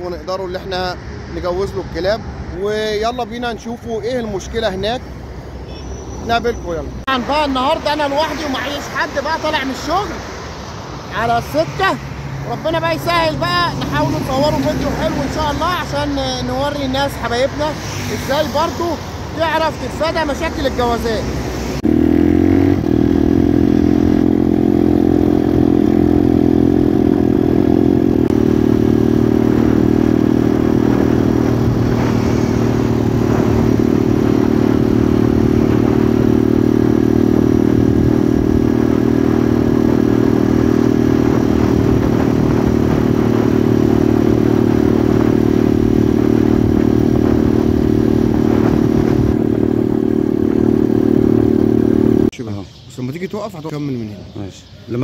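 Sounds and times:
motorcycle engine running: 21.8s - 52.3s.

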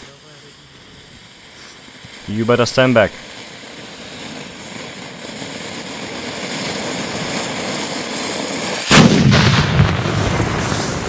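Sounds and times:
rocket motor hissing: 0.0s - 11.0s
loud explosion: 3.8s - 11.0s.

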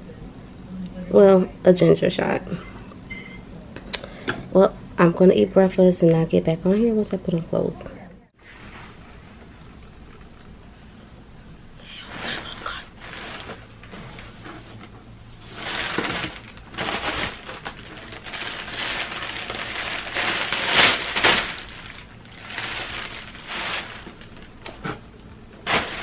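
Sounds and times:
plastic packaging crinkling: 12.0s - 26.0s.

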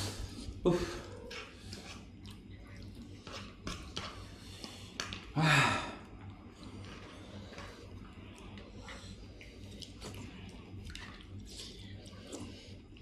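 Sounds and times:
chewing: 0.0s - 5.3s, 6.1s - 13.0s
person gasping: 5.3s - 6.1s.

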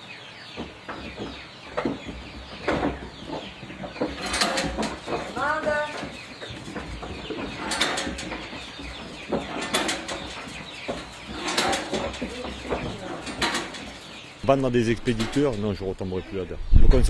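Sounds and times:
birds chirping and clucking: 0.0s - 17.0s
knocks and rattles of feed rack: 0.4s - 15.8s.

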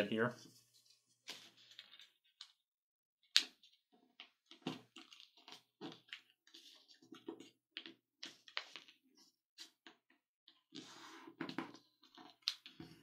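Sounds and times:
paper crinkling and rustling: 0.5s - 2.5s.

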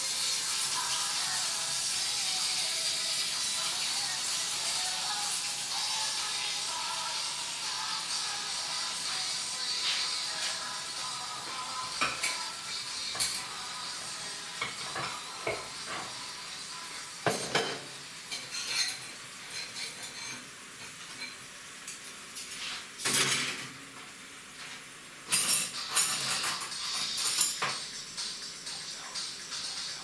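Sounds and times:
ceramic plates clinking: 17.2s - 20.4s.

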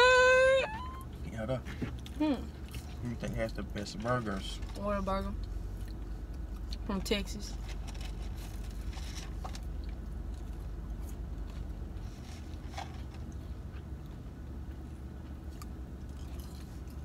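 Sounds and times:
low hum inside a car: 0.0s - 17.0s
chewing and mouth sounds: 1.8s - 4.8s, 5.4s - 6.9s, 7.8s - 12.0s, 13.1s - 17.0s.

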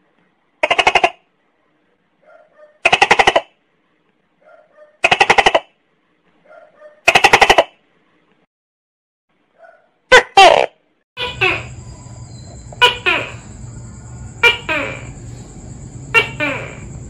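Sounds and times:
gecko calling: 11.2s - 17.0s.

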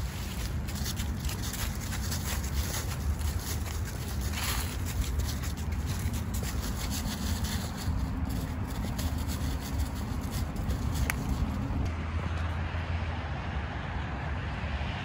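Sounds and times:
footsteps crunching dry leaves: 0.0s - 11.9s
steady low rumble: 0.0s - 14.4s.

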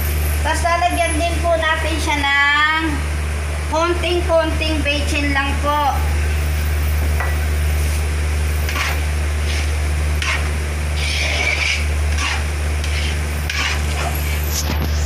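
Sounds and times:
loud steady low hum: 0.0s - 15.0s
metal ladle scraping a pan: 8.6s - 14.8s.

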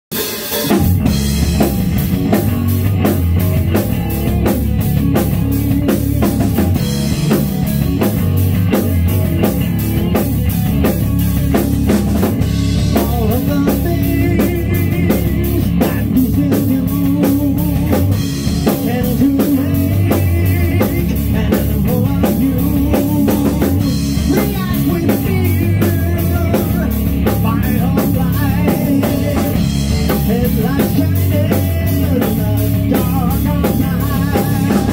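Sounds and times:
drum kit steady beat: 0.0s - 34.9s
bass guitar: 0.1s - 34.9s
distorted electric guitar: 0.1s - 34.9s
lead singer's vocals: 12.9s - 34.9s.

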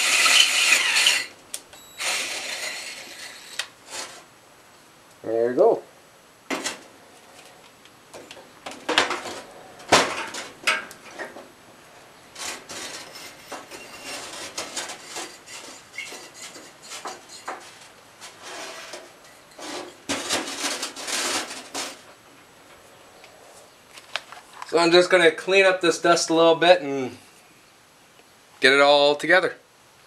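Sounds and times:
brick scraping across table: 12.4s - 22.1s.

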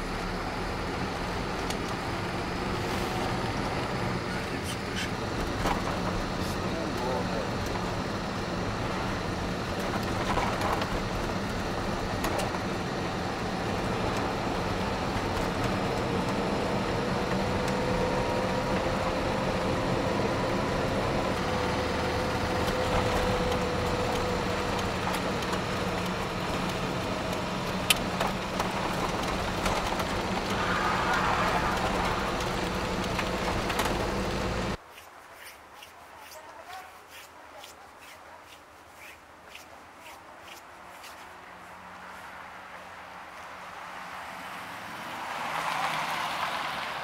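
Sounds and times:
car engine and road noise: 0.0s - 47.0s
faint whine: 28.8s - 34.8s.

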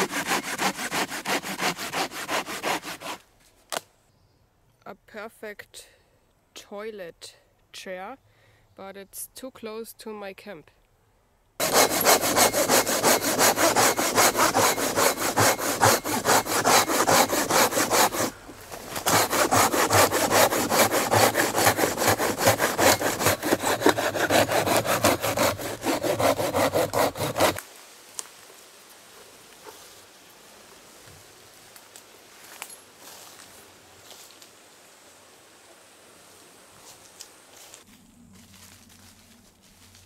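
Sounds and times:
folding saw cutting wood: 0.0s - 3.2s, 11.6s - 27.6s.

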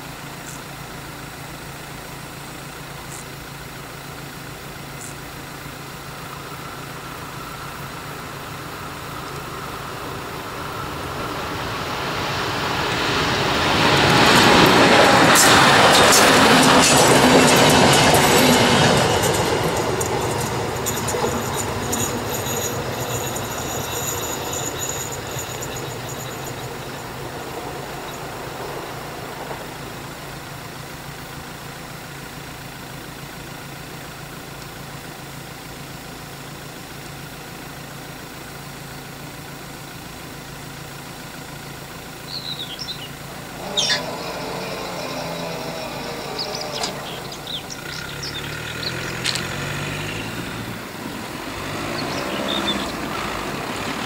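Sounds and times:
level crossing warning bell: 8.4s - 30.6s, 42.3s - 54.0s
train wheels clattering: 10.0s - 30.5s, 42.8s - 54.0s.

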